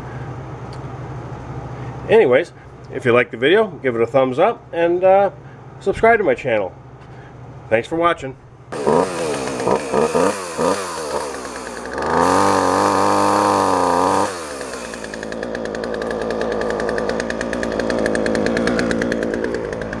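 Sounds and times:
chainsaw cutting log: 8.7s - 20.0s.

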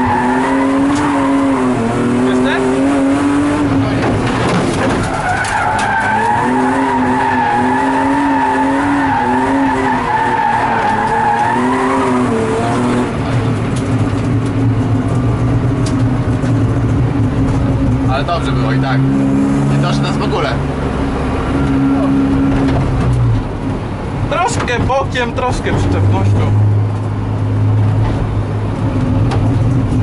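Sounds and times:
car engine revving: 0.0s - 30.0s
tyres squealing: 4.8s - 13.1s.

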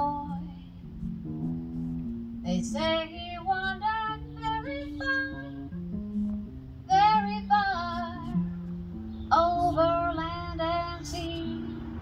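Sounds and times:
woman singing wordless melody: 0.0s - 0.8s, 2.4s - 5.9s, 6.8s - 12.0s
electric keyboard chords: 0.0s - 12.0s.

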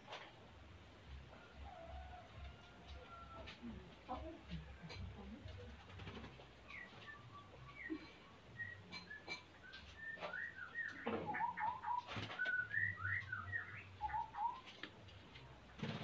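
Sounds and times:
bird singing whistled notes: 6.6s - 14.7s.

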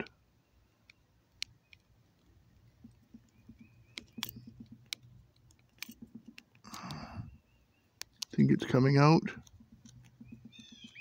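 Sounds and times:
sharp clicks: 0.8s - 7.3s, 8.0s - 8.6s, 9.3s - 11.0s.

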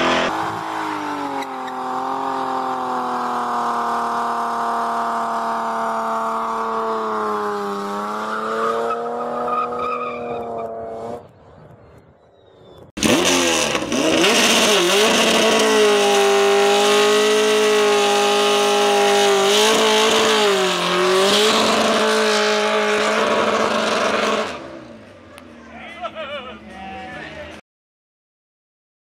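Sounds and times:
motorcycle engine at high revs: 0.0s - 9.4s, 13.0s - 24.9s
car burnout: 0.0s - 11.3s, 13.0s - 27.3s.

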